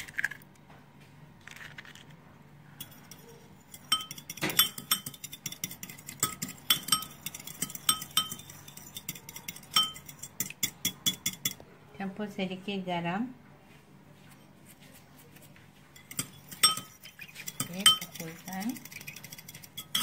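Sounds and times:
fork clinking against glass bowl: 2.8 - 11.6, 16.0 - 20.0.

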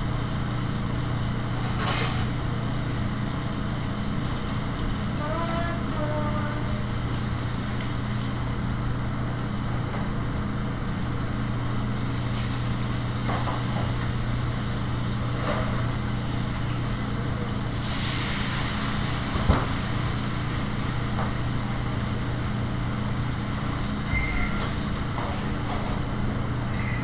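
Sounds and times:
kitchen exhaust hood drone: 0.0 - 27.0
burst of sizzling: 17.7 - 21.0.

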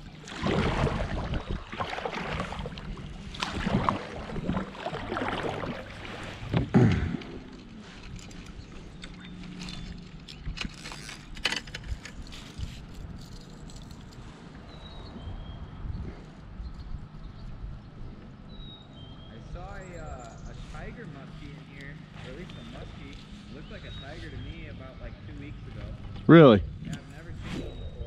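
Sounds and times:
paddle strokes and water splashing: 0.0 - 13.0, 20.6 - 24.3
low hum: 0.0 - 28.0.

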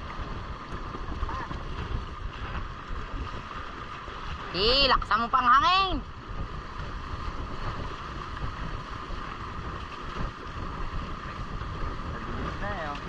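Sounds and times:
water rushing past hulls: 0.0 - 13.0
wind noise on microphone: 0.0 - 13.0.

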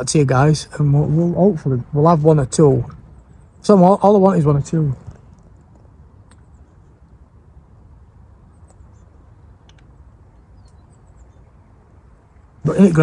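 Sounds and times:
wind rumble on microphone: 0.0 - 13.0
faint high bird chirps: 8.3 - 12.6.

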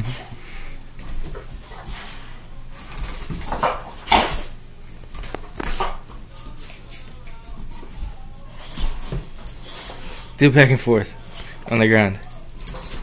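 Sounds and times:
dogs sniffing and snuffling: 0.0 - 7.1, 7.8 - 10.4.

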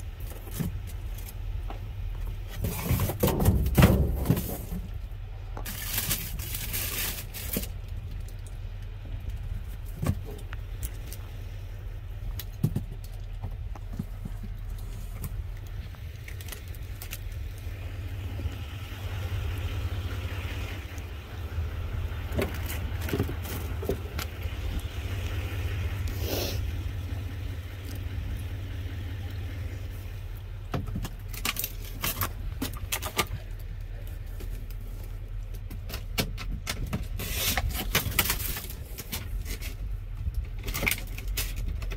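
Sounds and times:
boxes and packaging rustling: 2.2 - 8.5, 12.4 - 17.6, 22.3 - 24.8, 30.8 - 41.9
low rumble: 3.4 - 35.9.

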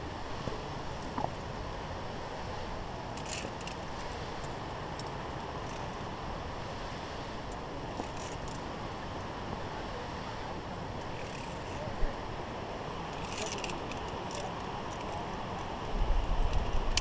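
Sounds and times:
wind rumble on microphone: 0.0 - 17.0
carabiners clinking on steel cable: 3.2 - 5.9, 8.0 - 8.6, 11.2 - 11.8, 13.1 - 15.2.

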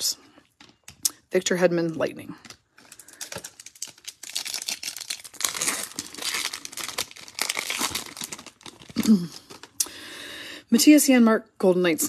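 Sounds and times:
foil wrapper tearing and crinkling: 2.8 - 9.8.

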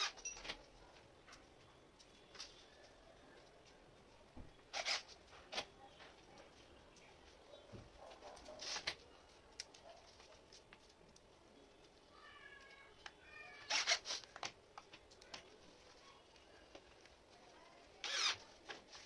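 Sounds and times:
scraping rustles: 8.0 - 11.1.

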